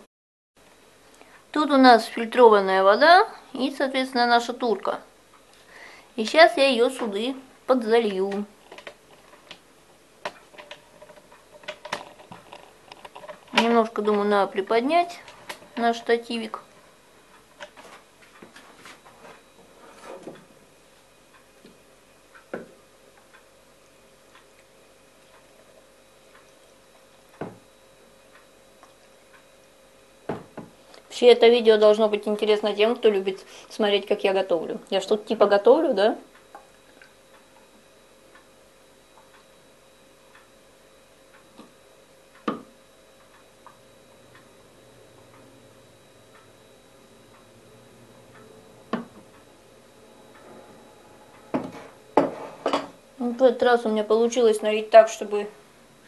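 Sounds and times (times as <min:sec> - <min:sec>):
faint regular ticking: 0:20.4 - 0:52.0.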